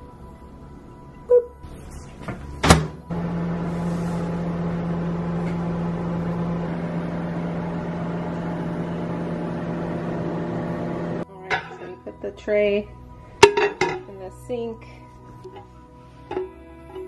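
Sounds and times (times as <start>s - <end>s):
microwave humming: 2.3s - 11.2s
microwave door click: 2.6s - 3.0s.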